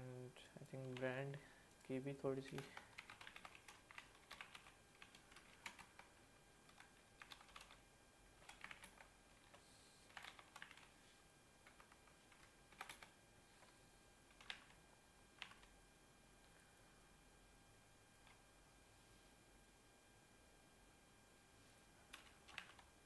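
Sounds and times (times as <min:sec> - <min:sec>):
keyboard typing: 0:01.7 - 0:06.1, 0:06.7 - 0:07.8, 0:08.4 - 0:10.9, 0:11.6 - 0:13.7, 0:14.3 - 0:14.8, 0:15.4 - 0:15.8, 0:22.1 - 0:22.9.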